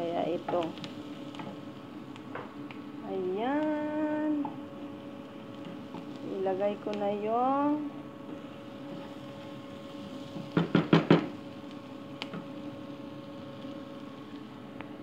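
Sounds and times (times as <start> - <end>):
steady hum: 0.0 - 15.0
wooden spatula knocking on pan: 10.4 - 11.3.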